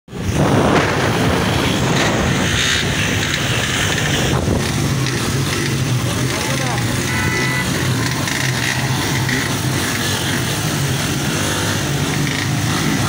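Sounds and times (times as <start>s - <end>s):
wind buffeting microphone: 0.1s - 6.2s
vehicle engine running: 0.1s - 13.0s.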